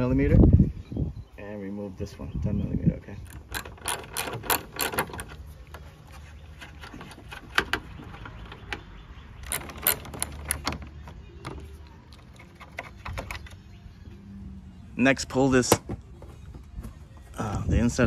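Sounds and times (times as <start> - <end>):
socket ratchet clicking: 3.3 - 5.4, 8.7 - 10.8.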